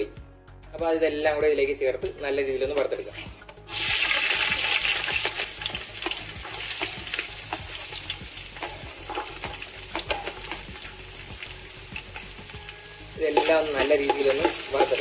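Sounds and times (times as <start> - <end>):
oil popping and crackling: 3.4 - 15.0
vegetables sizzling in hot oil: 3.6 - 15.0.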